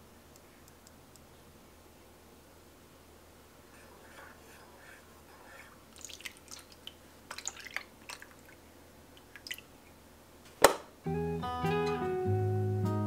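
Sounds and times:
milk pouring and dripping: 5.4 - 10.0.

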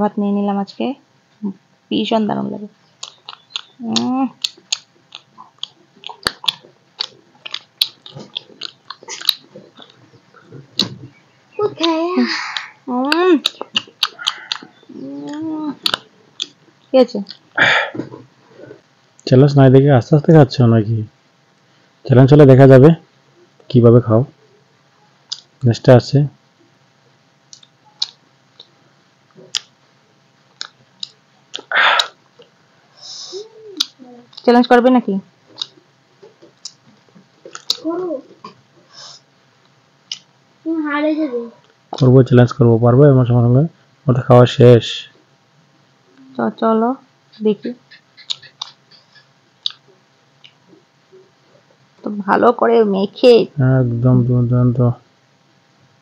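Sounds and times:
mouth clicks and smacks: 3.0 - 11.0, 11.8 - 17.6, 25.3 - 25.6, 27.5 - 28.8, 29.4 - 29.8, 30.5 - 32.6, 33.8 - 34.5, 35.5 - 35.8, 36.4 - 37.8, 40.0 - 40.3, 47.3 - 50.9
people eating by hand: 3.0 - 18.8, 27.4 - 29.8, 30.5 - 34.7, 35.4 - 40.3, 47.4 - 52.0.

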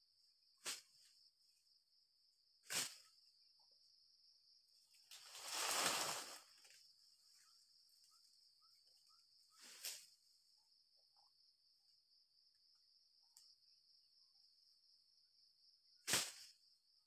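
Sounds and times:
faint insect chirps: 0.0 - 17.0
insects droning: 0.0 - 17.0
palm fronds rustling and dragged: 5.1 - 6.8, 9.6 - 10.2.

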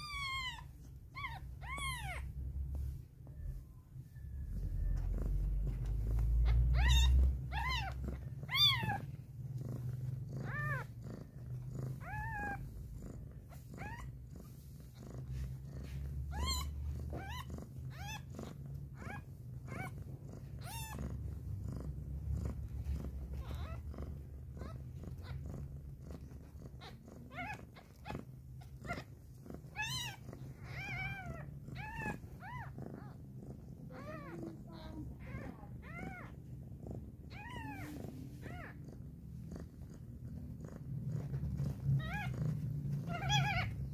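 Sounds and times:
kittens squeaking: 0.0 - 2.3, 5.9 - 9.2, 16.2 - 18.4, 29.7 - 33.2, 41.9 - 43.9
low purring: 0.0 - 43.9.

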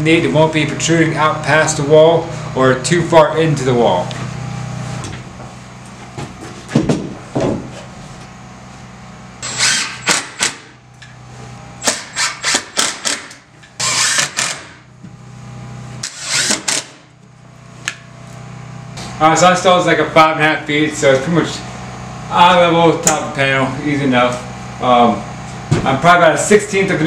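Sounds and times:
cordless drill driving screws: 9.4 - 10.6, 11.8 - 14.8, 16.0 - 17.0.

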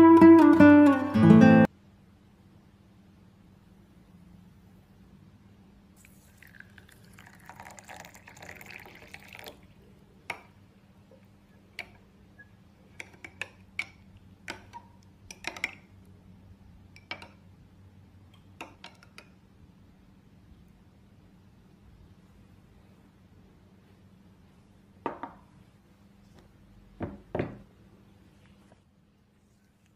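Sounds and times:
water pouring into glass bowl: 6.0 - 9.8.

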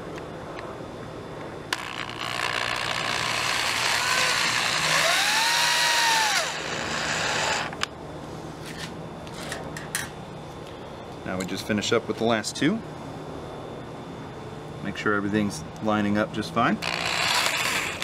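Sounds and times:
electric drill motor whining: 1.7 - 7.9, 16.8 - 18.0.

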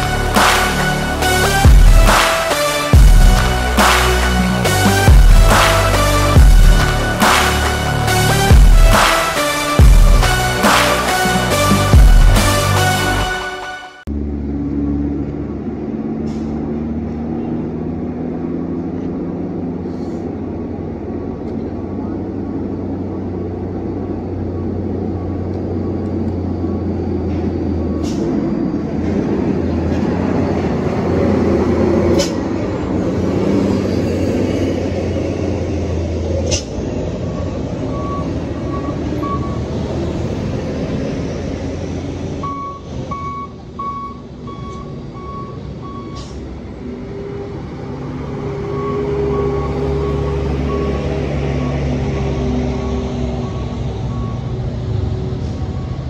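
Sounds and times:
diesel truck engines idling: 0.0 - 56.0
reversing beeper: 22.9 - 32.0, 33.4 - 41.4, 42.3 - 56.0.

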